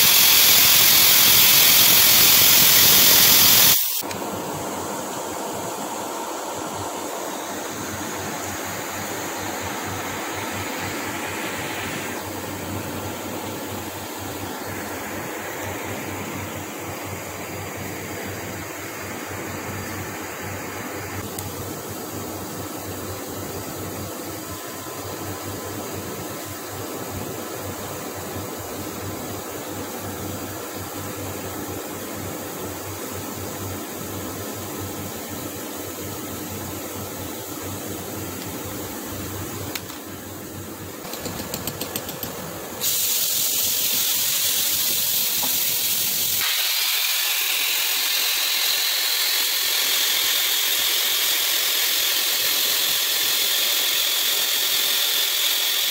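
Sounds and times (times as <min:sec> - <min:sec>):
spray-welding gun hissing: 0:00.0 - 0:04.2, 0:42.8 - 0:55.9
machine humming: 0:00.0 - 0:21.4, 0:38.0 - 0:55.9.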